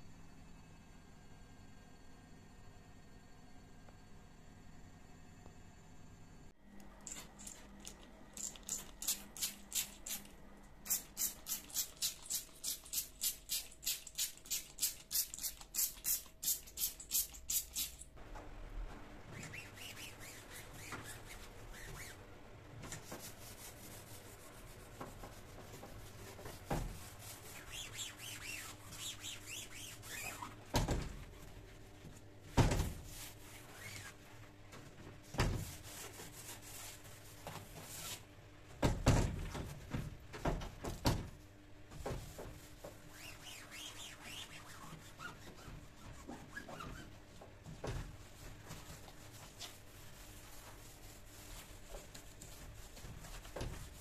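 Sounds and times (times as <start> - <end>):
trigger spray bottle squirting: 7.0 - 10.3, 10.9 - 18.0
cloth wiping glass: 23.0 - 30.6, 42.2 - 54.0.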